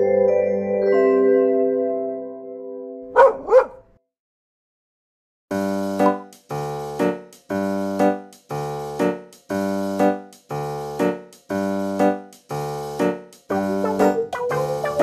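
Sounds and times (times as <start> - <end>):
keyboard chords repeating: 5.5 - 8.2, 11.7 - 15.0.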